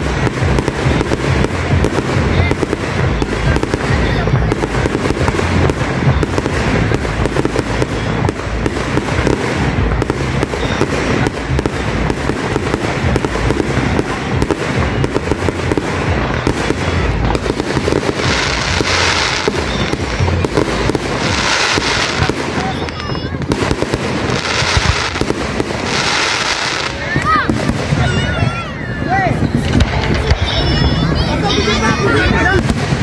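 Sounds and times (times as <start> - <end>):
deep rumble of booms: 0.0 - 26.1
fireworks bursting and crackling: 0.0 - 33.0
hissing rush: 0.0 - 33.0.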